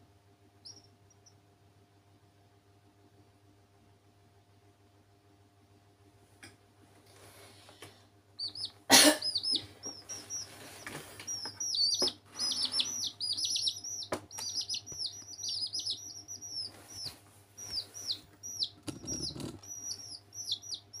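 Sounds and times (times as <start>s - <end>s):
chicks peeping: 0.6s - 1.4s, 8.4s - 21.0s.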